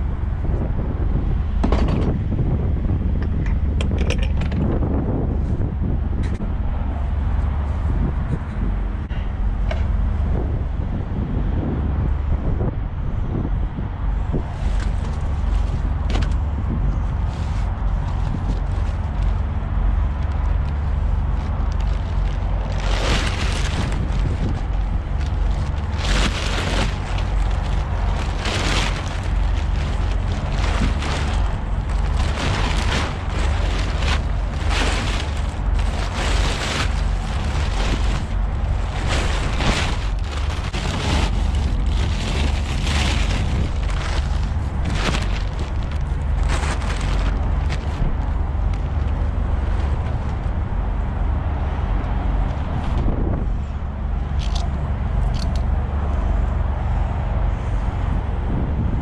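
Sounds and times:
steady low rumble: 0.0s - 59.0s
plastic tarp crinkling: 14.6s - 51.6s.

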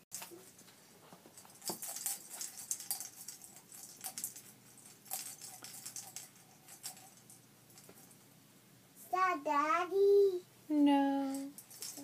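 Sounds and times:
small hard objects rattling: 1.3s - 8.2s, 11.3s - 12.0s.

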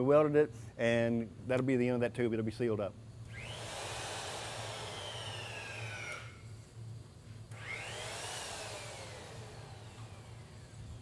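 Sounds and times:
steady low hum: 0.0s - 11.0s
electric drill motor whine: 3.2s - 6.6s, 7.5s - 11.0s.

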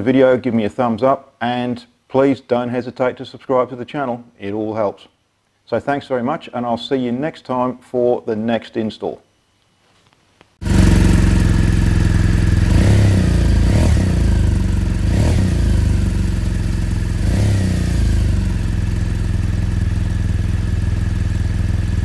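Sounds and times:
motorcycle engine idling: 10.6s - 22.0s.

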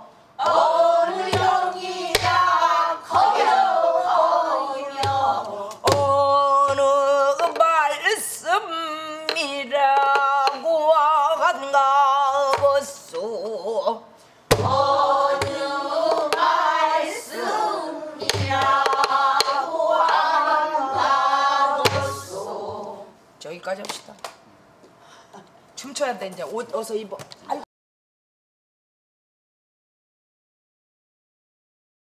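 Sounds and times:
woman singing with vibrato: 0.4s - 23.2s
barrel drum strokes: 14.5s - 16.6s, 18.2s - 22.8s.

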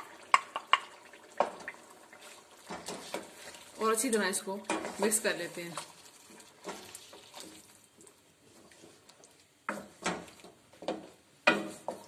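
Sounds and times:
spatula knocking and scraping pan: 0.0s - 3.6s, 4.6s - 7.6s, 9.6s - 12.0s
spatula stirring food: 0.0s - 12.0s.

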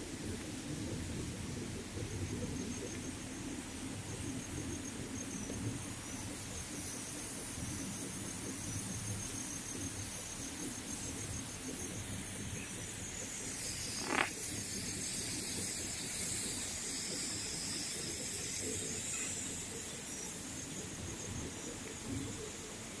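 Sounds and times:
insects chorus: 0.0s - 23.0s.

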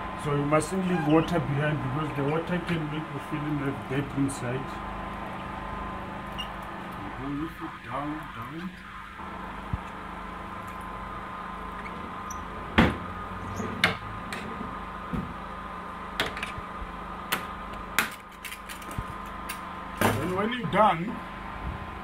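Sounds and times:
steady hum: 0.0s - 22.0s.

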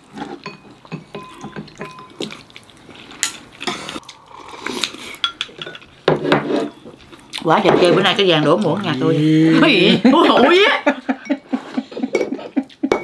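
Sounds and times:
chopsticks and spoon clinking bowls: 0.2s - 2.4s, 5.1s - 9.0s, 10.2s - 13.0s.

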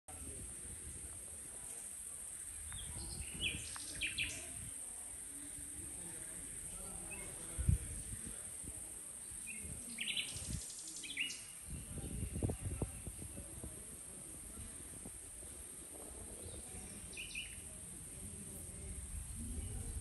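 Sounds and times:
nightingale singing: 2.4s - 4.7s, 9.3s - 12.4s, 16.8s - 17.8s.

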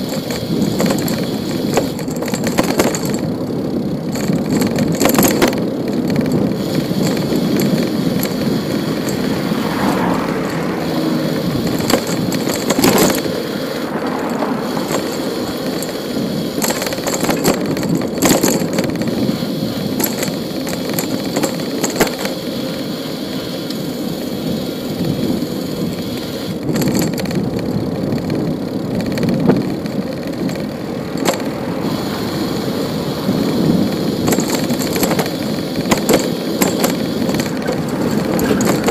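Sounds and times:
bicycle tyres rumbling on road: 0.0s - 38.9s
bike rattles and clicks: 0.0s - 38.9s
passing traffic: 0.0s - 38.9s.

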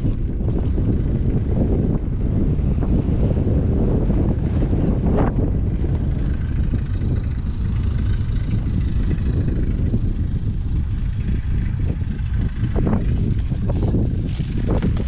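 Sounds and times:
diesel engine idling: 0.1s - 15.0s.

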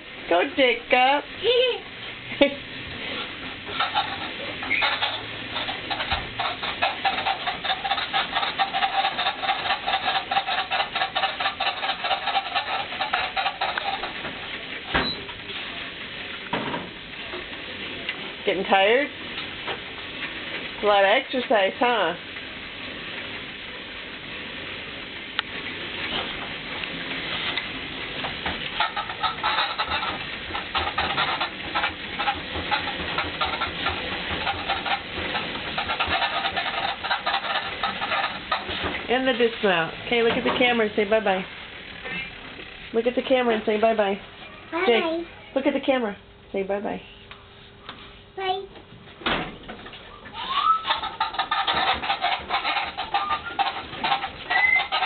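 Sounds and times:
elliptical trainer squeaking: 3.1s - 15.3s, 28.3s - 45.0s, 50.0s - 55.0s
pulsing squeak: 3.7s - 14.2s, 50.1s - 55.0s.

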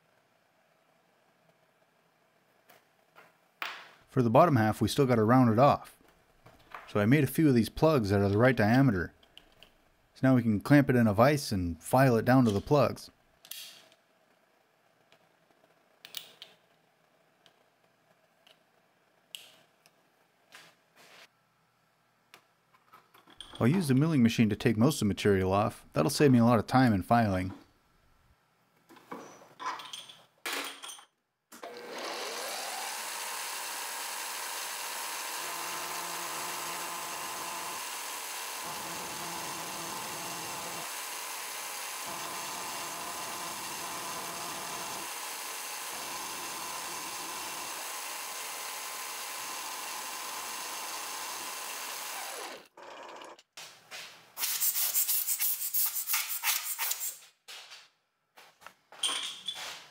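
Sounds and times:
milling machine whine: 31.6s - 53.4s.

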